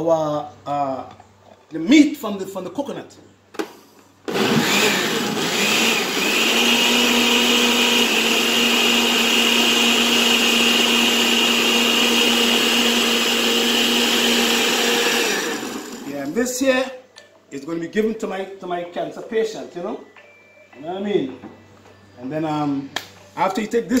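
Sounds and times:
blender motor running: 4.3 - 16.4.

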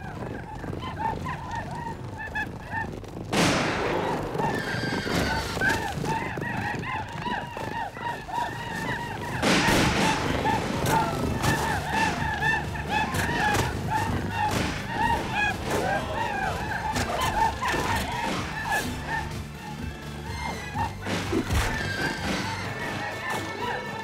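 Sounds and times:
men whooping war cries: 7.0 - 21.1, 21.7 - 24.0.

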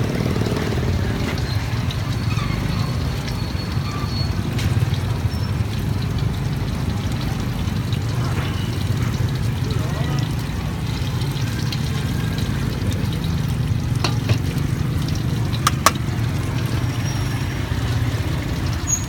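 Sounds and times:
oil bubbling in a wok: 0.0 - 19.0
metal tongs click: 15.7 - 16.0.

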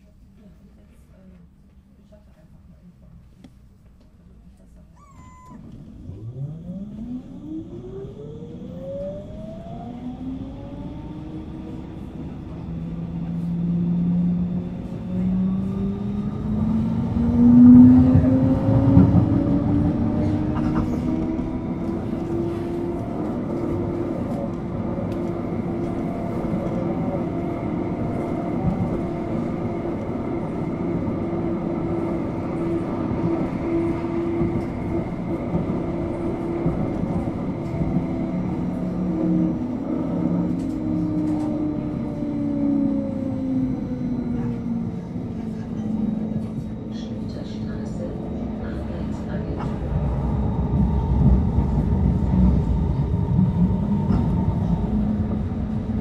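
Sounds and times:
tram traction motor whine: 5.5 - 56.0.

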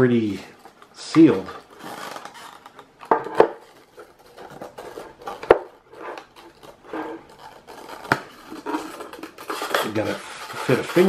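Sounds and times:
plastic box rustling in hands: 0.2 - 11.0.

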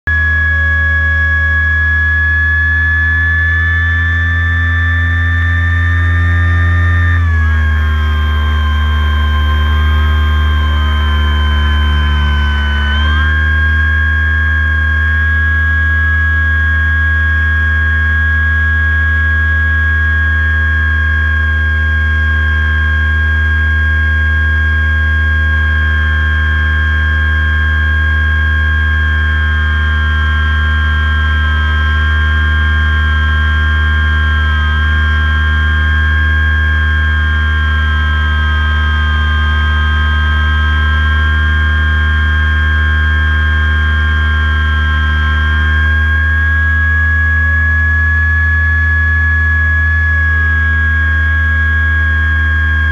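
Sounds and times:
model airplane motor and propeller hum: 0.2 - 16.1.

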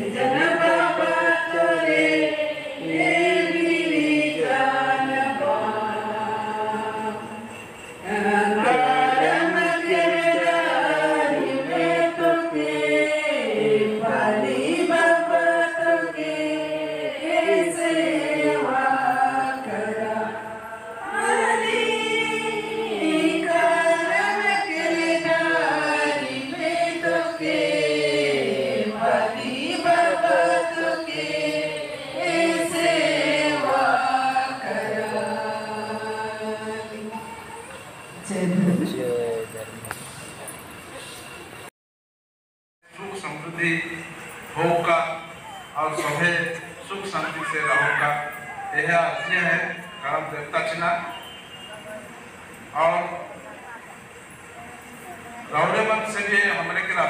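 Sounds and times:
women singing in unison: 0.0 - 37.5.

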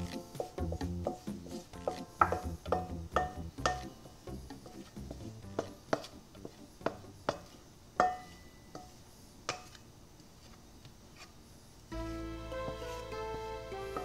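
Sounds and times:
bowl and utensil tapping: 1.8 - 4.0, 5.5 - 9.8.

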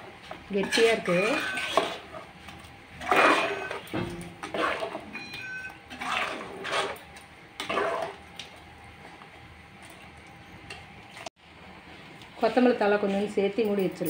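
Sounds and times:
ladle stirring curry in a pot: 5.9 - 8.2.

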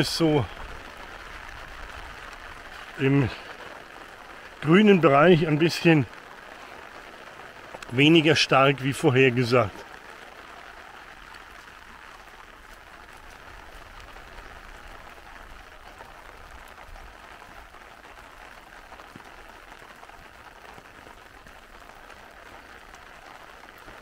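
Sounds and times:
rain on an umbrella: 0.0 - 24.0.

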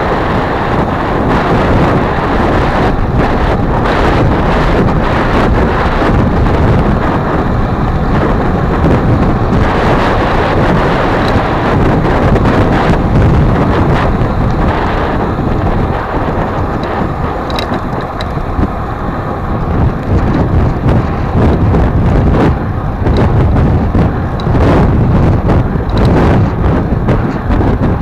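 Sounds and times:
bicycle tyre noise on pavement: 0.0 - 28.0
wind buffeting microphone: 0.0 - 28.0
small clicks and rattles: 16.6 - 18.4.

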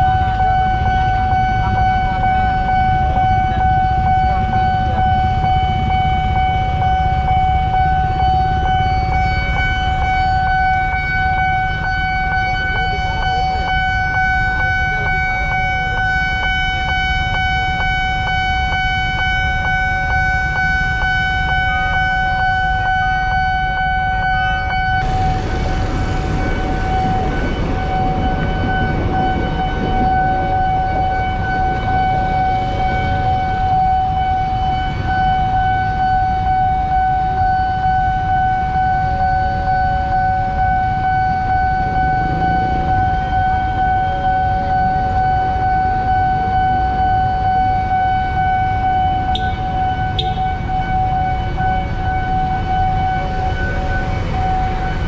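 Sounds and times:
idling motorbikes and cars: 0.0 - 23.9, 24.6 - 37.0, 47.8 - 55.0
level crossing alarm tone: 0.0 - 55.0.

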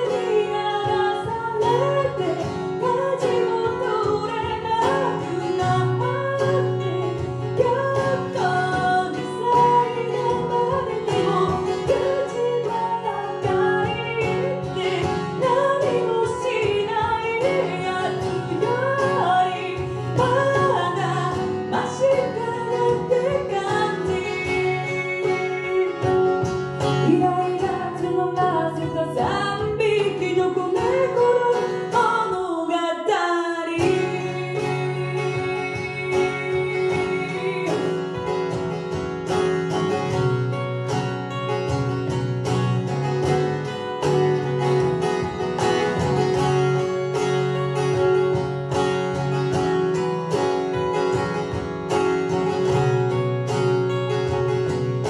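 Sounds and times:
looped backing parts: 0.0 - 32.4, 33.8 - 55.0
woman singing: 0.0 - 40.5
acoustic guitar: 0.0 - 55.0.

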